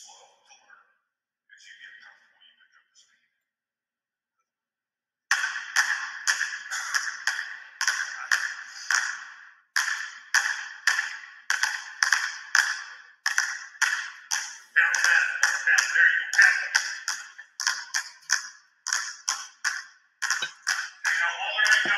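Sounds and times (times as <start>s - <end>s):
basketballs bouncing on gym floor: 9.8s - 15.6s, 16.4s - 21.1s, 21.7s - 21.9s.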